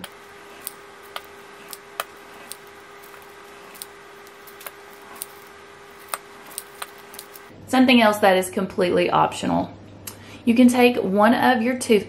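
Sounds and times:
pizza cutter rolling through dough: 0.0s - 7.5s
faint steady hum: 0.0s - 12.0s.

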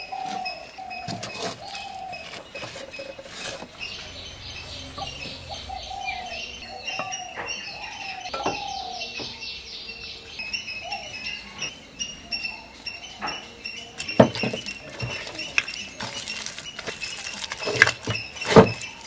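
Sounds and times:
birds chirping and trilling: 0.0s - 19.0s.

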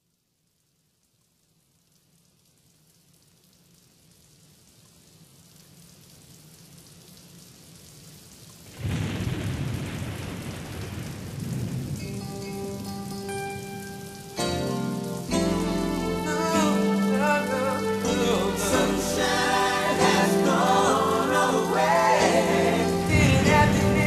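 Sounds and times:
rain falling: 0.0s - 24.0s
thunderclap rumbling: 8.7s - 12.8s, 22.9s - 24.0s.

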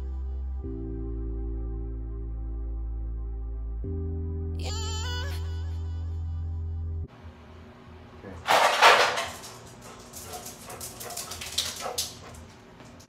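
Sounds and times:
dog nails clicking and collar jingling: 8.5s - 13.0s
dog barking: 9.9s - 12.4s.

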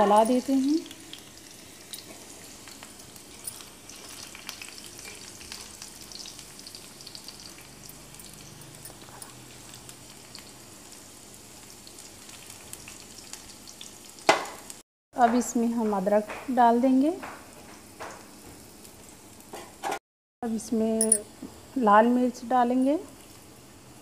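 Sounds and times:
seeds and garlic sizzling in oil: 0.0s - 14.8s, 20.6s - 24.0s.

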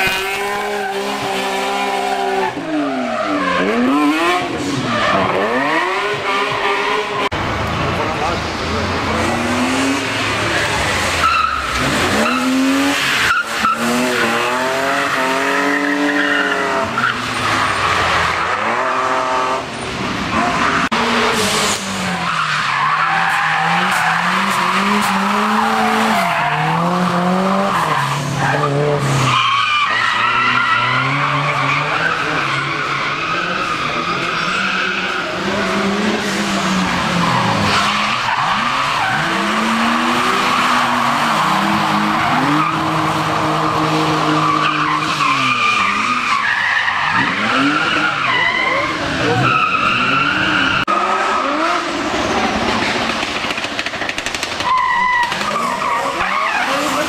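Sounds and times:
car engines revving hard: 0.0s - 57.0s
tyres squealing and skidding: 0.0s - 57.0s
sharp cracks: 52.8s - 55.6s.

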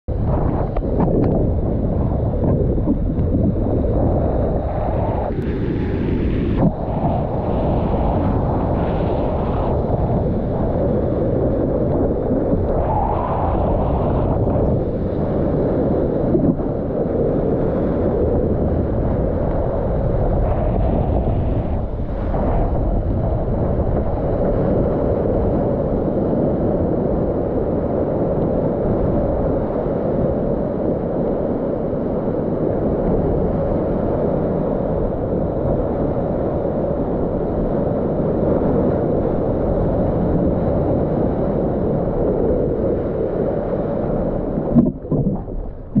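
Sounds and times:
wind buffeting microphone: 0.1s - 46.0s
breaking wave whitewater rushing: 44.3s - 46.0s.

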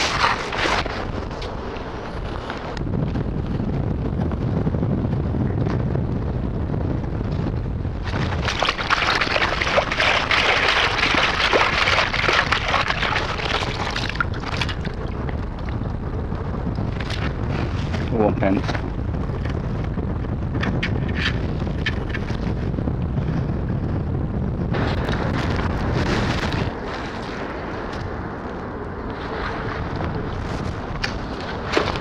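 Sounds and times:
wind buffeting microphone: 0.0s - 32.0s
metal scoop splashing in water: 8.4s - 14.8s.

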